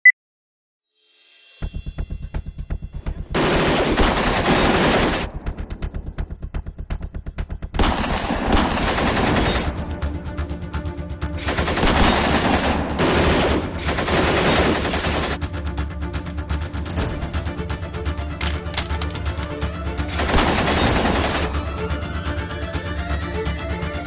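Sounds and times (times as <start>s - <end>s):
machine-gun fire: 3.3s - 5.5s, 7.8s - 9.7s, 11.4s - 15.4s, 20.2s - 21.6s
music with pulsing beat and bass: 5.4s - 8.8s.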